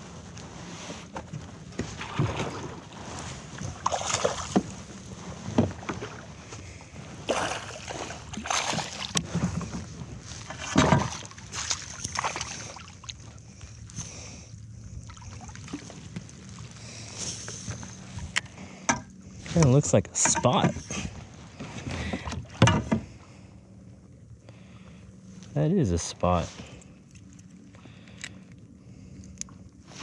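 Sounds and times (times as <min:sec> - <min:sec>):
knocks and rustles in kayak: 0:00.0 - 0:13.3, 0:15.6 - 0:23.3
faint steady hum: 0:00.0 - 0:30.0
water splashes: 0:03.6 - 0:04.8, 0:07.2 - 0:09.3, 0:10.4 - 0:13.4.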